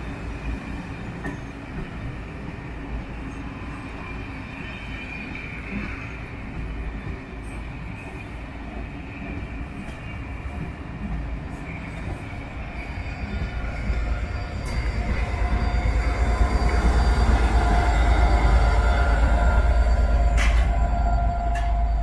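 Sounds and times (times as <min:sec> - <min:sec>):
train wheels on rails: 0:00.0 - 0:22.0
faint high wheel squeal: 0:11.6 - 0:22.0
diesel locomotive rumble: 0:12.8 - 0:22.0.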